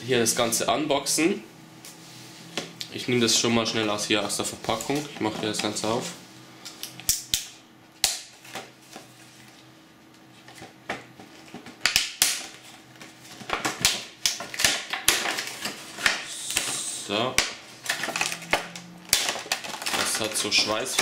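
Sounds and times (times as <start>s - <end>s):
plastic packaging clicking and crinkling: 10.4s - 16.7s, 17.4s - 21.0s.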